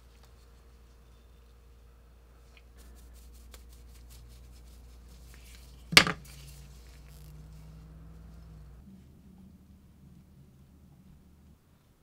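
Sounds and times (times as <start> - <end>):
low steady hum: 0.0 - 12.0
sharp knock of hard objects: 5.9 - 6.2.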